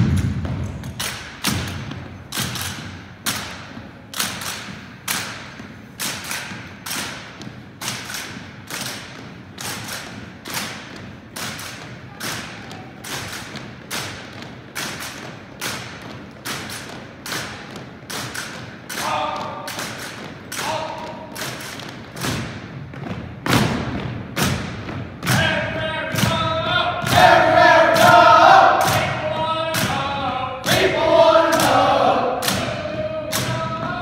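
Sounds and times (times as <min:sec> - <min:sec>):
marching footsteps on wooden floor: 0:00.0 - 0:25.5.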